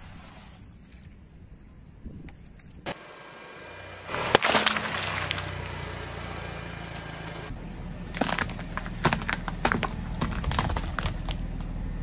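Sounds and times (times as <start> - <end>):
slowly moving car hum: 2.8 - 12.0
melon bursting under a tyre: 4.1 - 6.1
crackling crunches: 4.1 - 7.2, 8.1 - 11.6.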